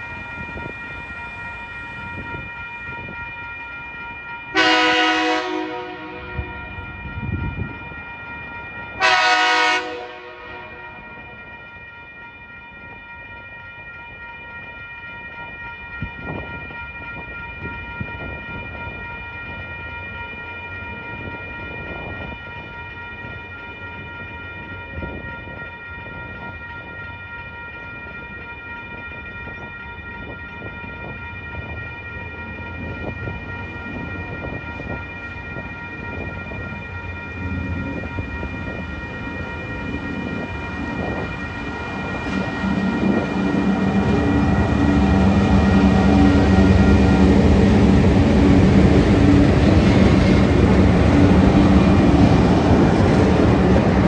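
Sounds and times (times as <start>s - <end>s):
crossing warning bell ringing: 0.0s - 54.0s
low rumble of train: 0.0s - 54.0s
train horn blasts: 4.5s - 6.5s, 9.0s - 10.9s, 42.1s - 52.0s.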